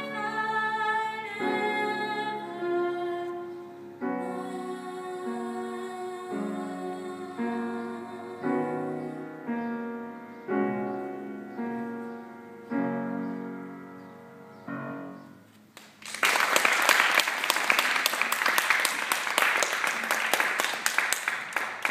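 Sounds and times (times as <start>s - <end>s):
piano chords ringing: 0.0s - 15.6s
audience applause: 15.8s - 21.9s.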